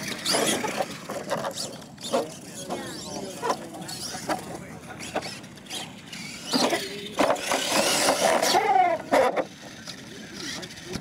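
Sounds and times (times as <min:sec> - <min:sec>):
rc truck motor whining: 0:00.0 - 0:11.0.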